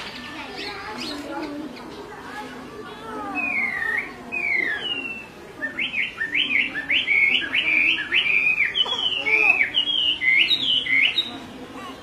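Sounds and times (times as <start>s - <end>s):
bird whistling song: 3.3s - 11.4s.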